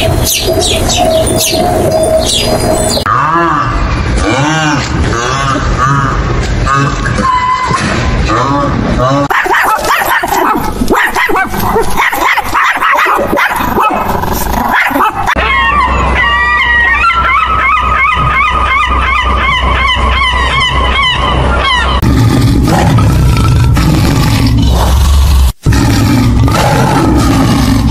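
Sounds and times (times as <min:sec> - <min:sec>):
seagulls crying: 0:00.0 - 0:03.1, 0:15.4 - 0:22.0
dog barking and yipping: 0:09.3 - 0:14.1, 0:14.7 - 0:21.9
tiger growling: 0:21.9 - 0:27.9.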